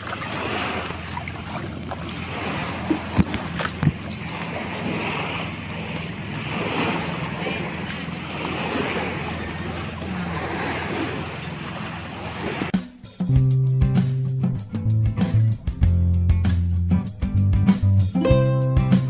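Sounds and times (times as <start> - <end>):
water washing around boat: 0.0 - 12.8
boat engine hum: 0.0 - 19.0.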